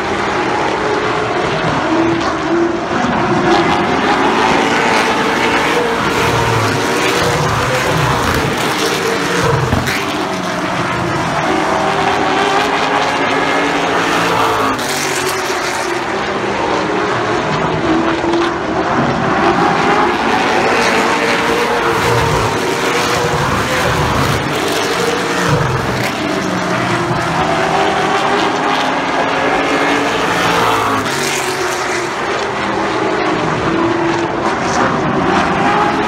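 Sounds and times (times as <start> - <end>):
race car engines passing: 0.0 - 36.0.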